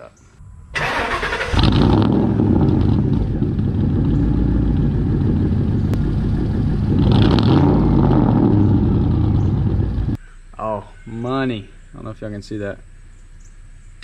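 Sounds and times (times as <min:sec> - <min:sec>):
truck engine idling: 0:02.3 - 0:10.2.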